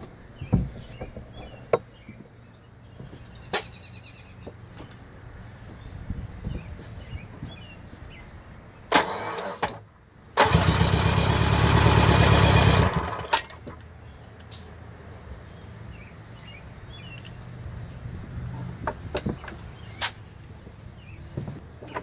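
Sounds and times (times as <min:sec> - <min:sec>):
electric starter cranking engine: 0:08.9 - 0:09.8, 0:10.4 - 0:13.5.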